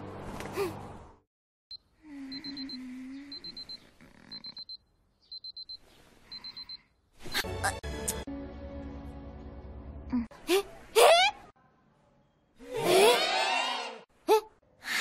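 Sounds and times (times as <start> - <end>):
low sleepy voice humming: 2.0 - 4.5
alarm clock beeping: 2.3 - 6.9.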